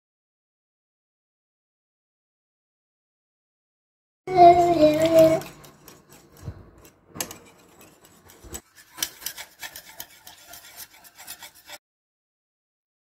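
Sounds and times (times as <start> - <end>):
whisk beating in a glass bowl: 4.3 - 11.8.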